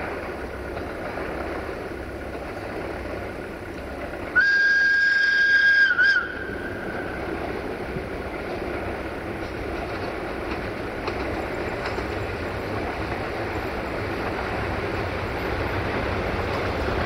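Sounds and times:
train rumble: 0.0 - 17.0
locomotive whistle blast: 4.4 - 7.0.

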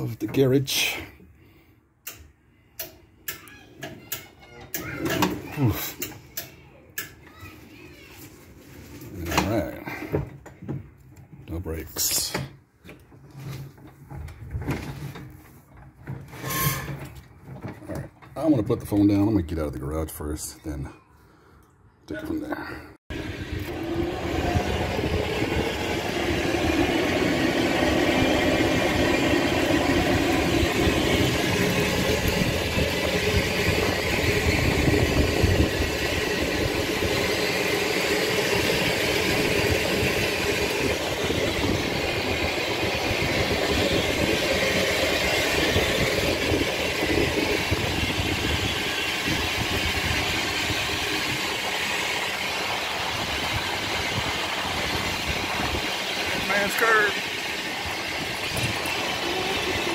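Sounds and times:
electric golf cart driving: 23.1 - 59.9.

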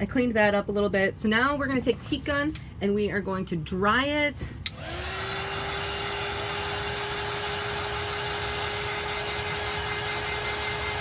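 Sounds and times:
fan air rushing: 4.1 - 11.0
heat gun motor whine: 4.7 - 11.0.

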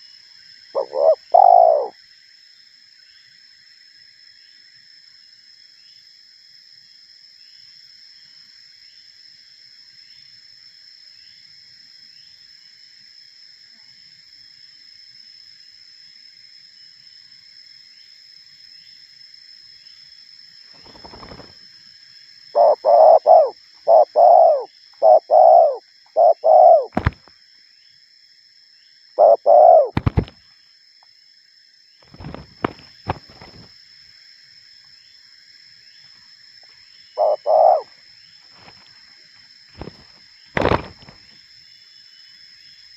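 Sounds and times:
high insect drone: 0.0 - 42.9
dove cooing: 0.8 - 2.0, 22.6 - 27.2, 29.2 - 30.3, 37.2 - 37.9
sharp snaps: 29.9 - 30.4.

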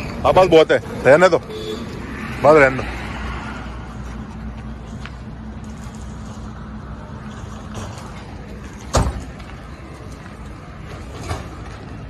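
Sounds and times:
vehicle door slamming: 8.8 - 9.4.

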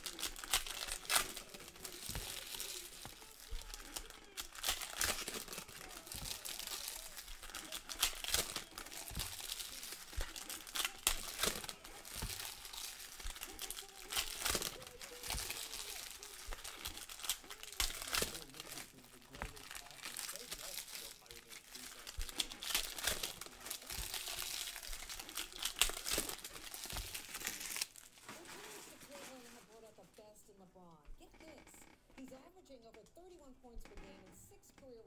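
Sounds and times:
cards rustling: 0.0 - 30.2
wrappers crinkling and tearing: 0.0 - 30.2.

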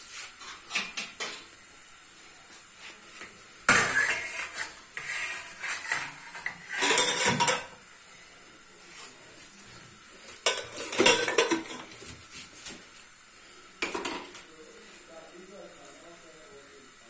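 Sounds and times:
metal colander clattering: 5.8 - 7.8, 10.4 - 11.9.

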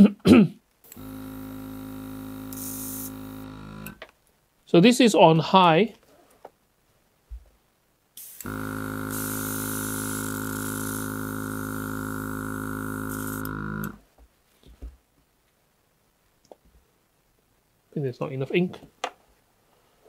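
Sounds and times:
airbrush compressor humming: 0.9 - 4.0, 8.2 - 14.0
air hissing from airbrush: 2.5 - 3.2, 8.2 - 11.2.

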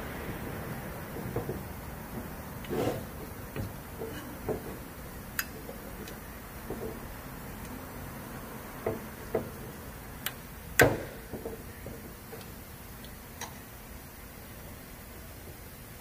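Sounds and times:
tools and engine parts clicking: 1.1 - 7.0.

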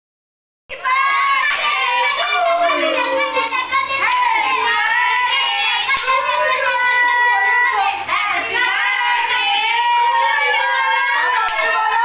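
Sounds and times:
voices singing: 0.7 - 12.0
sharp claps: 2.9 - 6.2.

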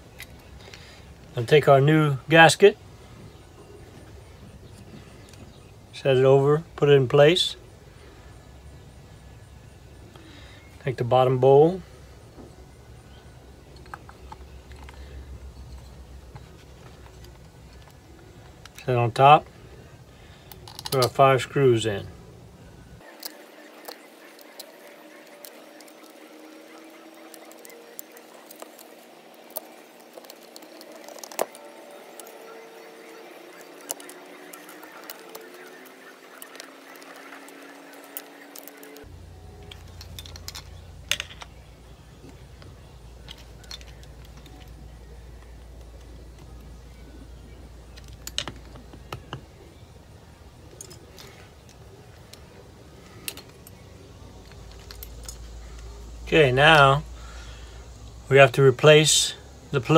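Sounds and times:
faint steady hum: 0.0 - 59.9
screwdriver clicks and scrapes: 33.6 - 39.1.

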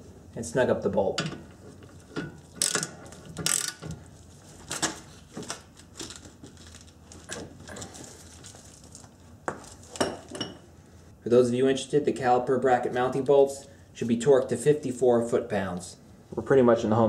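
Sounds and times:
ratchet wrench clicking: 2.6 - 4.0.

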